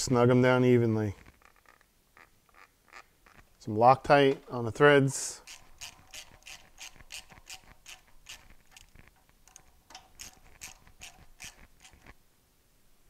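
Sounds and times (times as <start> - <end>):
hand ratchet clicking: 5.4 - 12.1.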